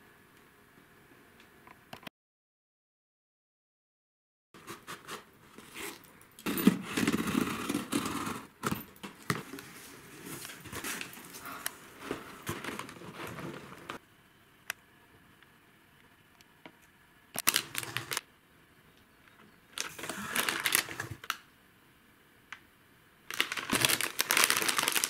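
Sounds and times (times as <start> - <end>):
handling rustling and crackling: 5.5 - 14.0, 17.4 - 18.2, 23.3 - 25.0.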